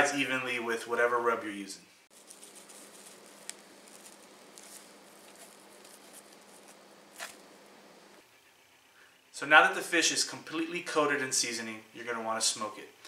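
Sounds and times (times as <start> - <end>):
faint steady hum: 0.0 - 13.0
hands rubbing seasoning on fish: 2.1 - 7.4.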